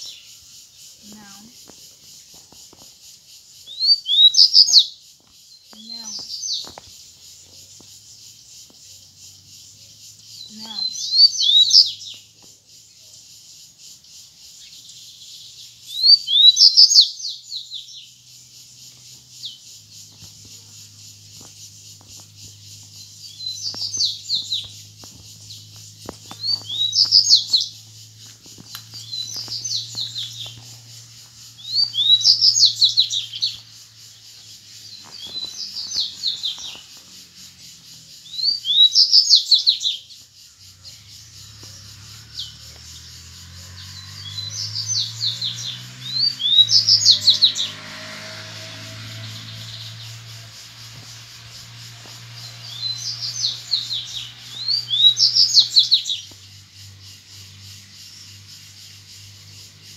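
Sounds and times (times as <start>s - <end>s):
bird singing whistled phrases: 10.5s - 12.0s, 15.9s - 17.2s.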